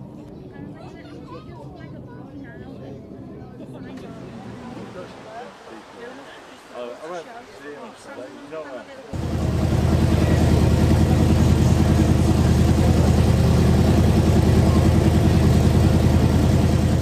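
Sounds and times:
car engine idling: 9.2 - 17.0.

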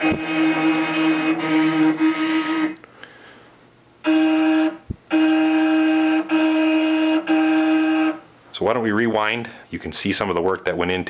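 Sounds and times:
stepper motors whining: 0.0 - 2.8.

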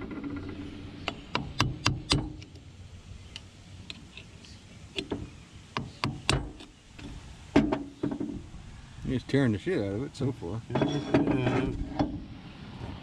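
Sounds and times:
metal tool clicking and tapping: 1.1 - 2.6.

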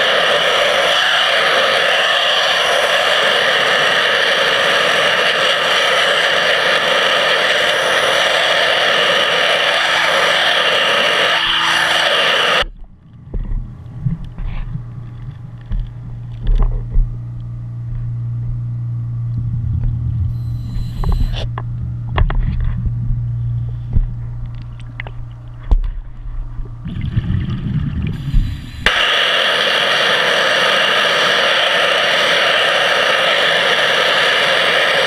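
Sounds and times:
pressure washer jetting underwater: 0.0 - 12.8, 26.6 - 35.0
low steady hum: 6.6 - 35.0.

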